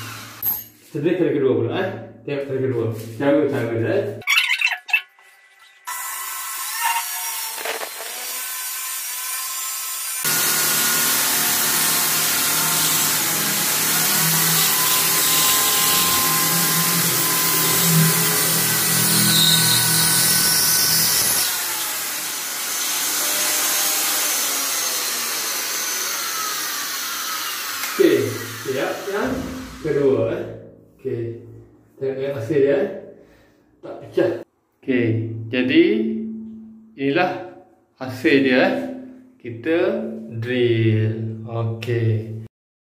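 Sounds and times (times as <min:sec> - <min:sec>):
electric drill grinding through tile: 0:00.0 - 0:00.7, 0:05.8 - 0:30.0.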